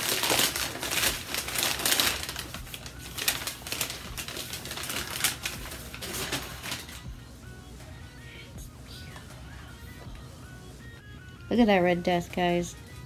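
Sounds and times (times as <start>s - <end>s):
packing paper crinkling: 0.0s - 7.1s.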